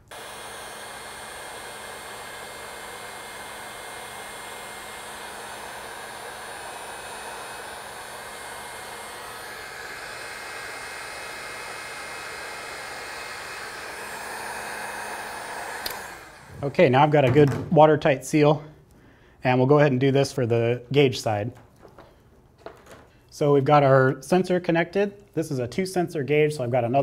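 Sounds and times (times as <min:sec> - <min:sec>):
heat gun fan blowing: 0:00.0 - 0:18.6.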